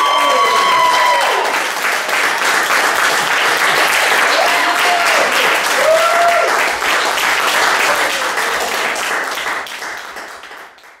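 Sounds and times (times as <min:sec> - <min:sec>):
audience cheering: 0:00.0 - 0:07.2
audience applauding: 0:00.0 - 0:11.0.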